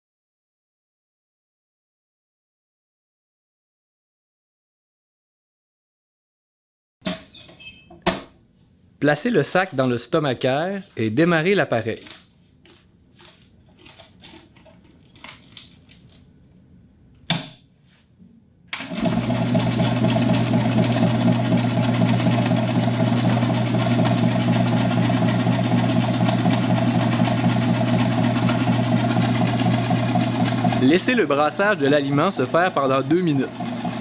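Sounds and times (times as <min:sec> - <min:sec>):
paddle blender humming: 0:18.8 - 0:34.0.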